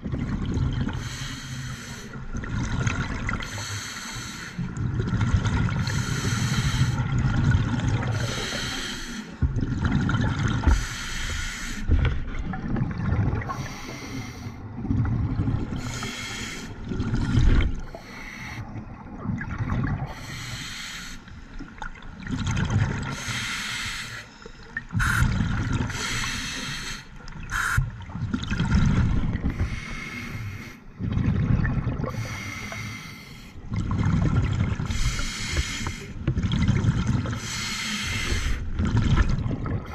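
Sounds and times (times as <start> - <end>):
hissing regulator inhalations: 8.1 - 9.4, 15.8 - 16.8, 20.1 - 21.3, 23.2 - 24.4, 25.9 - 27.8, 34.9 - 36.2, 37.4 - 38.6.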